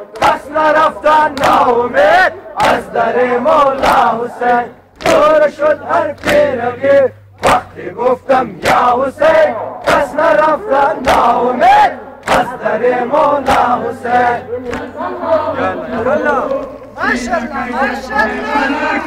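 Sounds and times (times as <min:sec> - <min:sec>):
crowd of men chanting: 0:00.0 - 0:19.0
hands slapping chests in unison: 0:00.1 - 0:15.0.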